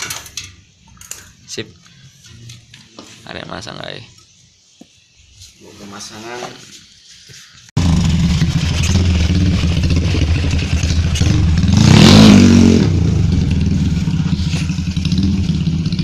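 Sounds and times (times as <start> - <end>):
motorcycle engine revving: 7.8 - 16.0.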